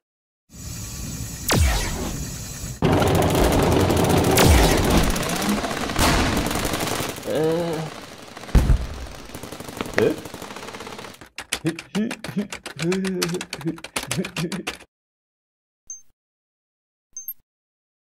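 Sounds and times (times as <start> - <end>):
heavy explosions: 2.8 - 10.6
rapid machine-gun fire: 2.8 - 11.7.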